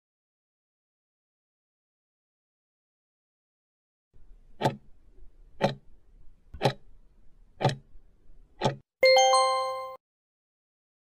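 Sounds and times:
timer ticking: 4.5 - 6.0, 6.6 - 6.9, 7.6 - 7.9, 8.6 - 8.8
electronic two-note chime: 9.0 - 10.0.

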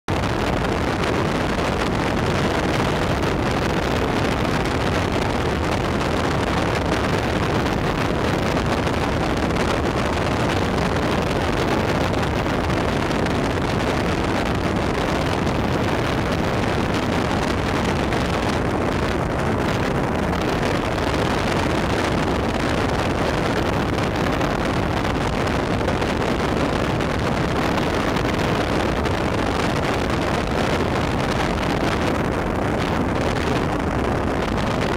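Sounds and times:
motorboat engine and hull: 0.1 - 34.9
wind on microphone: 0.1 - 34.9.

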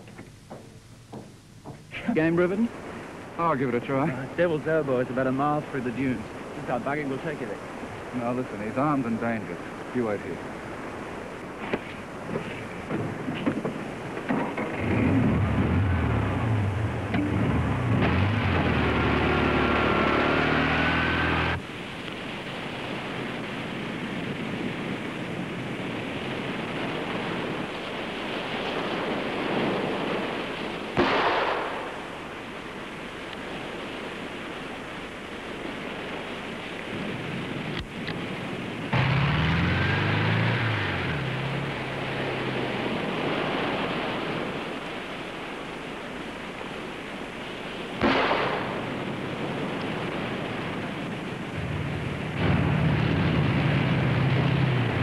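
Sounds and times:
buggy engine running: 14.7 - 21.6, 38.9 - 42.7, 51.6 - 55.0.

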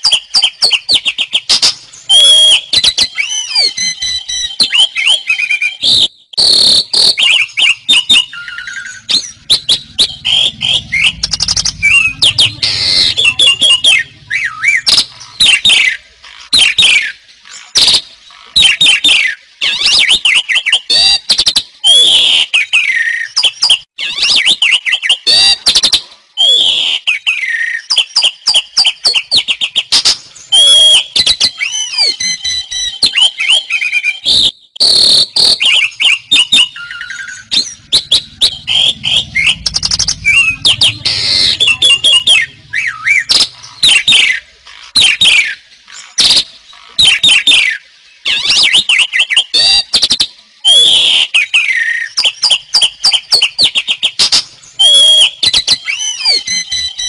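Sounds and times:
starling singing: 7.0 - 18.0, 30.4 - 49.9.

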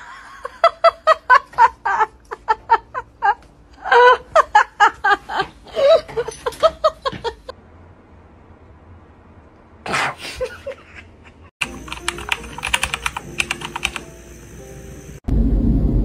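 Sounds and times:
person laughing hard: 0.0 - 7.5, 10.2 - 11.5.

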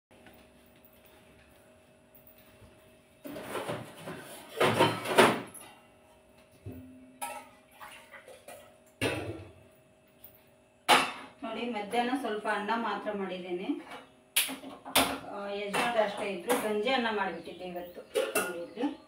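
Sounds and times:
steel pans clattering and scraping: 3.2 - 5.8, 18.0 - 18.8.

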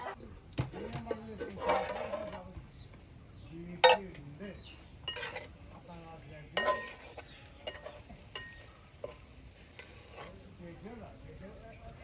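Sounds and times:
metal spatula scraping a pot: 0.0 - 2.6, 3.8 - 4.2, 5.0 - 5.8, 6.5 - 10.6.

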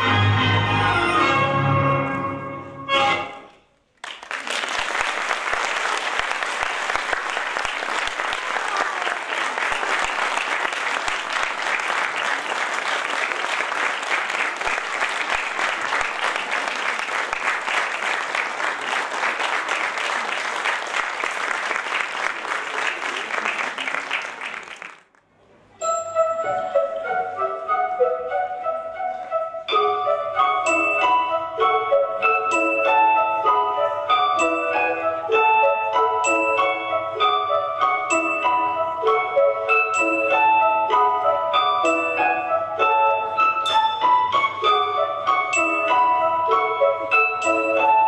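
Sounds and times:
music: 0.0 - 3.6, 25.8 - 48.0
audience applause: 4.0 - 25.2.

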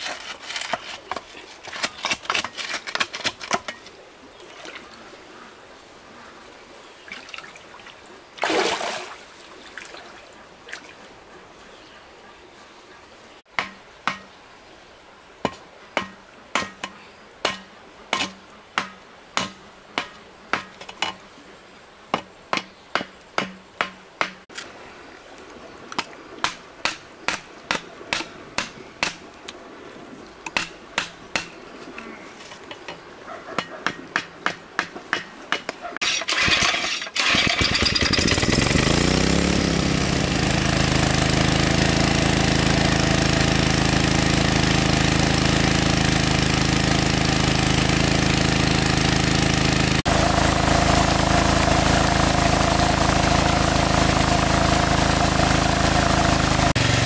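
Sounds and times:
sharp knocking strikes: 13.5 - 14.3, 22.1 - 24.4.

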